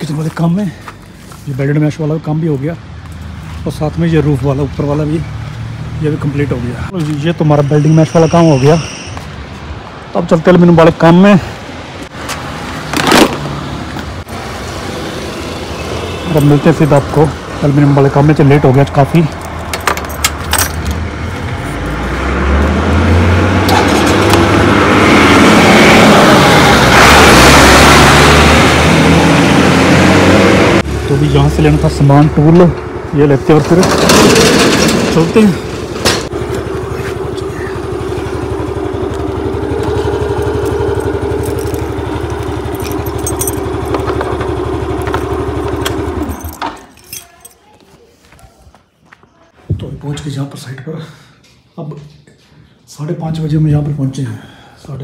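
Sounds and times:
road noise: 0.0 - 55.0
scooter engine running: 33.7 - 46.6.

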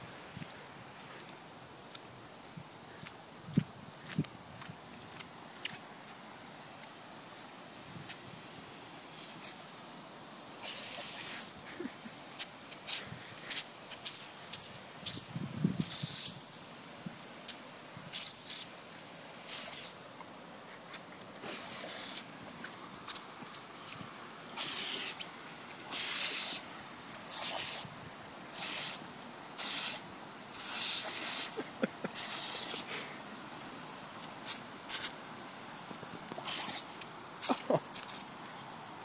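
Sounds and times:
sprinkler jet hissing: 0.0 - 39.0
water spattering bursts: 10.5 - 20.0, 21.2 - 38.5.

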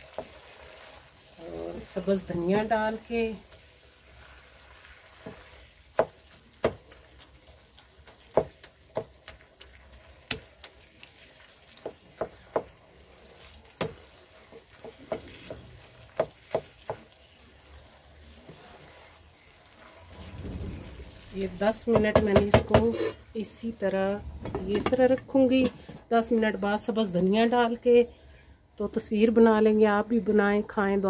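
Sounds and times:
food sizzling: 0.0 - 27.8
wooden spoon scraping pan: 10.8 - 23.4.

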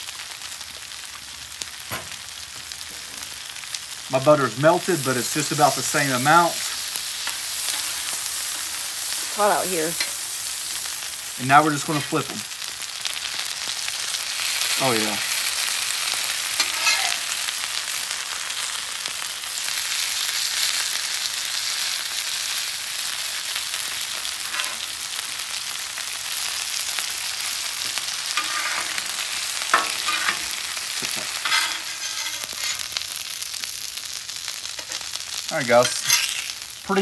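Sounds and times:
fish fillets sizzling on griddle: 0.0 - 37.0
metal spatula scraping on steel: 5.4 - 10.2, 11.8 - 12.3, 16.5 - 17.4, 24.5 - 24.8, 28.3 - 33.0, 35.8 - 36.5.

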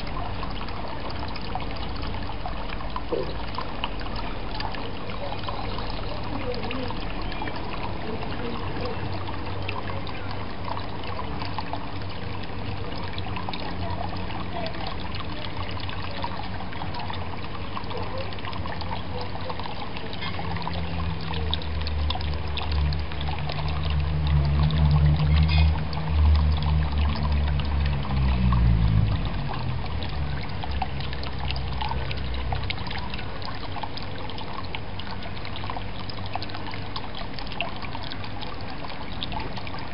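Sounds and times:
low steady hum: 0.0 - 39.9
small drips and splashes: 0.0 - 39.9
water trickling into pond: 0.0 - 39.9
droplet plinks: 25.0 - 25.9.

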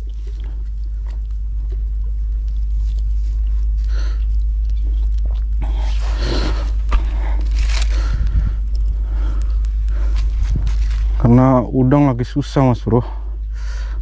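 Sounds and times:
microphone handling rustle: 5.8 - 11.5
wind rumble on microphone: 6.9 - 11.3.

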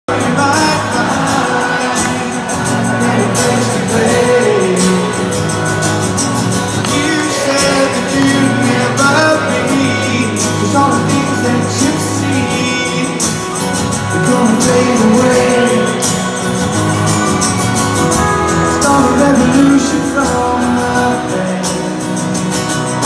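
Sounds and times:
man singing: 0.1 - 5.7, 6.8 - 17.3, 18.1 - 23.0
live rock band playing: 0.1 - 23.0.

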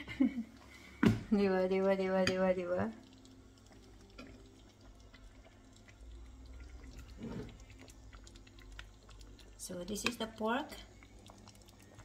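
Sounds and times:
faint liquid dripping: 0.0 - 12.0
spoon stirring food in sauce: 2.1 - 12.0.

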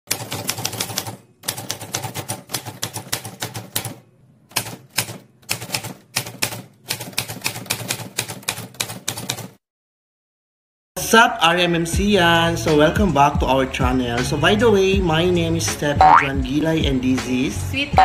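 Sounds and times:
typewriter keys clacking: 0.1 - 9.6.

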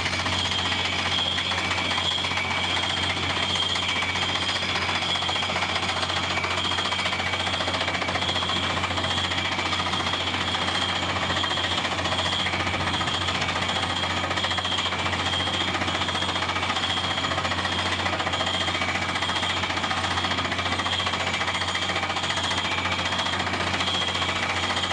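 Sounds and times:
drilling rig hammering: 0.0 - 24.9.

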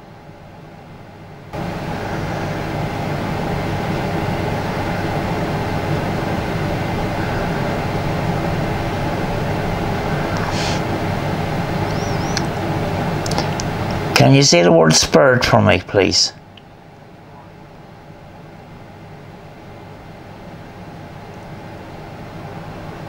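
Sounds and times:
droning hum with rumbling: 0.0 - 23.0.

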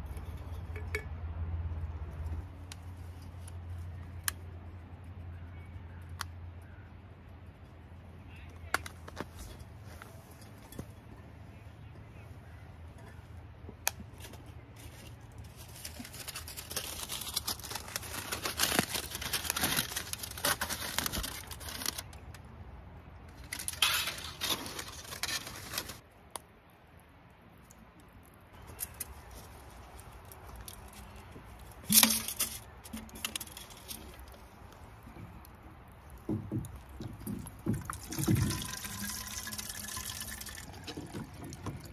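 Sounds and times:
aluminium foil crinkling: 14.7 - 22.4, 23.3 - 26.0, 28.6 - 41.9.

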